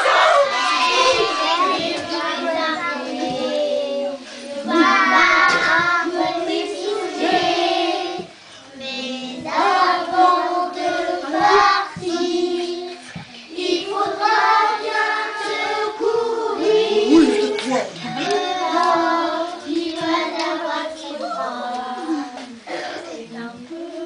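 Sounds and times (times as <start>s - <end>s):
children singing a carol: 0.0s - 24.0s.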